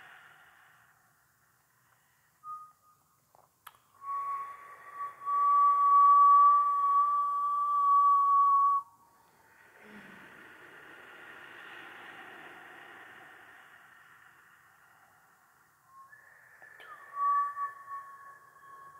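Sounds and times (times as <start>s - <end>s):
whistling inhaled breath: 0.0s - 3.2s, 3.9s - 18.9s
click: 3.3s - 3.9s.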